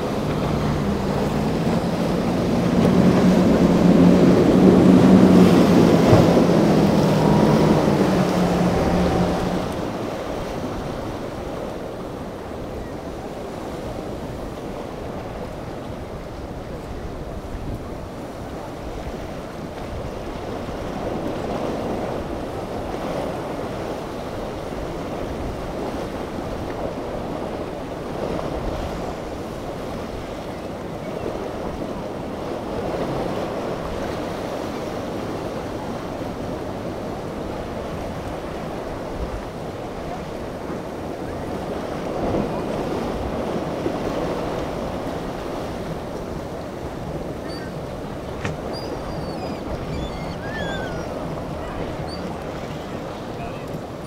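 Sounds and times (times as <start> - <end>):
boat running through waves: 0.0 - 54.0
choppy water surging: 0.0 - 54.0
wind buffeting microphone: 0.0 - 54.0.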